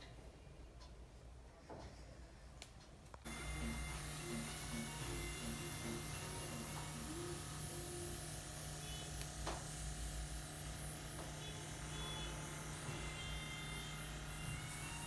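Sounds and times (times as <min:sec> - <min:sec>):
compressor buzzing hum: 0:03.2 - 0:15.0
airbrush hissing: 0:03.3 - 0:15.0.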